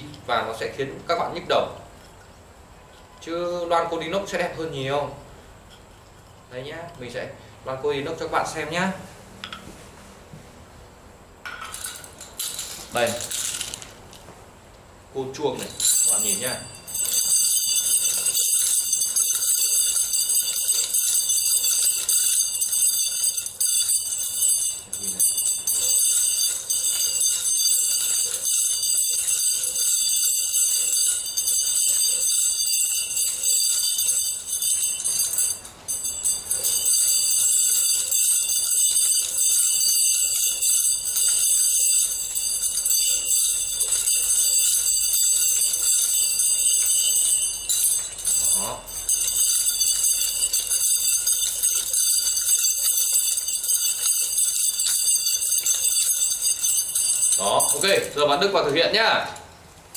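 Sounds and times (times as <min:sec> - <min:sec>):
metal nunchaku jingling: 0:11.6 - 0:13.9, 0:15.4 - 0:59.6.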